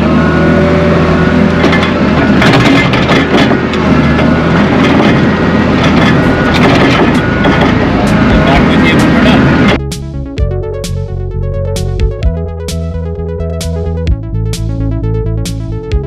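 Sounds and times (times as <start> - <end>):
skid steer engine running: 0.0 - 16.0
bucket clanks and rattles: 1.6 - 8.6.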